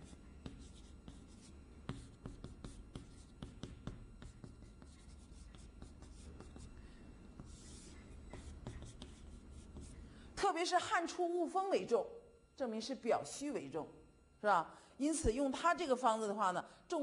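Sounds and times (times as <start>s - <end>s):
chalk tapping on chalkboard: 0.0s - 6.8s, 7.4s - 10.0s
faint low hum: 0.0s - 17.0s.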